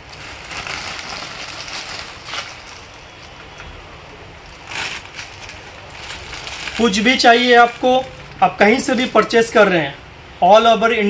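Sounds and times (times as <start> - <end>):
plastic bag crinkling: 0.0 - 3.6, 4.4 - 9.4.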